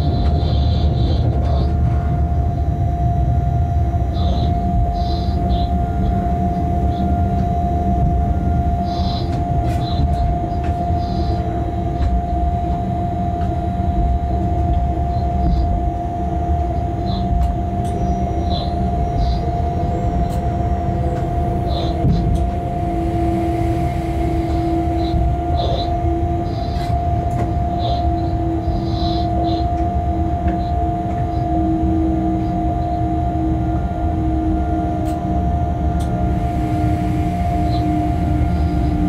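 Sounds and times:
constant hum: 0:00.0 - 0:39.0
train locomotive rumble: 0:00.0 - 0:39.0.

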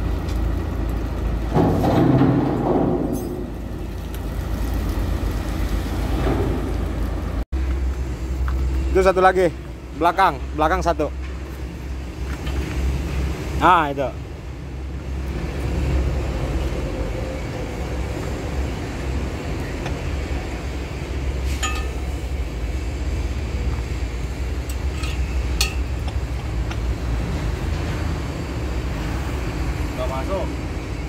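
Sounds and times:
diesel engine rumbling: 0:00.0 - 0:31.0
sharp metallic clinks: 0:21.6 - 0:22.2.

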